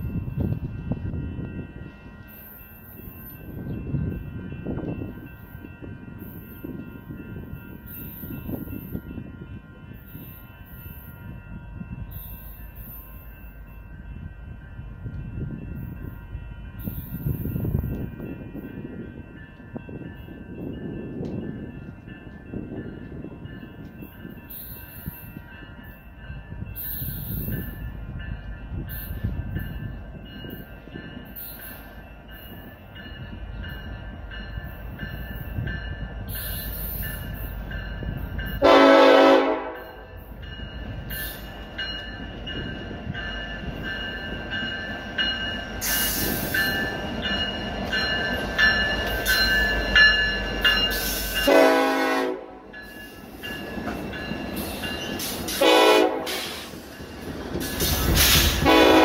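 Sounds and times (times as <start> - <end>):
diesel locomotives rumbling: 0.0 - 59.0
train air horn blasts: 38.6 - 40.1, 51.4 - 52.6, 55.5 - 56.7, 58.3 - 59.0.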